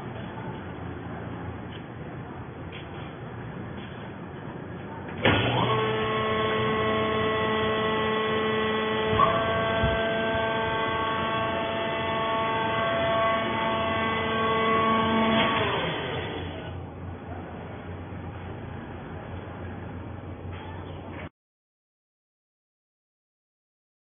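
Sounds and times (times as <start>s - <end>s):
hydraulic motor whine: 5.2s - 16.8s.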